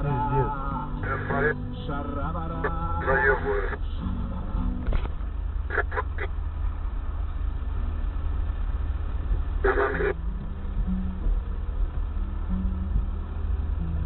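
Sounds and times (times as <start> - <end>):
road and engine rumble in car: 0.0 - 14.0
car horn honking: 9.6 - 10.2.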